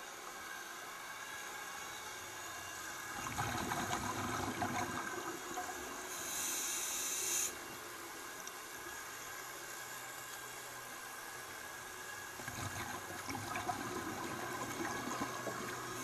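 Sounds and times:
steady underwater hiss: 2.4 - 16.0
exhaled bubbles rushing: 3.2 - 5.8, 12.4 - 16.0
regulator hissing inhalation: 6.1 - 7.6.

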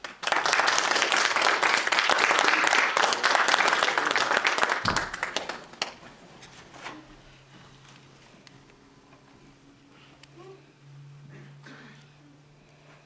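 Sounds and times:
congregation applauding: 0.0 - 6.0.

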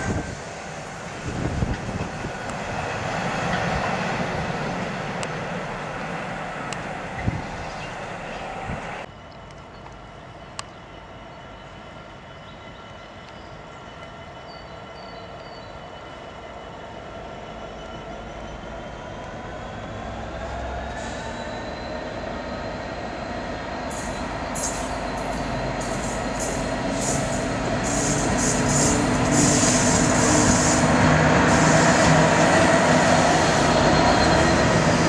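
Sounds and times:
diesel locomotive engine drone: 0.0 - 35.0.

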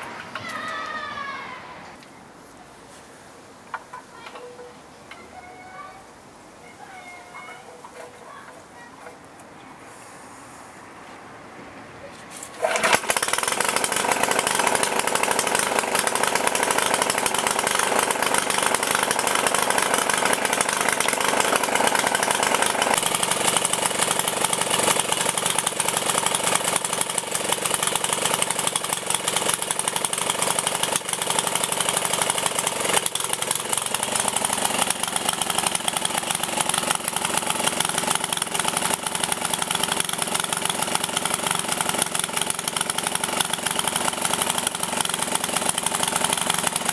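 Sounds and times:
stationary petrol engine running: 12.6 - 46.9.

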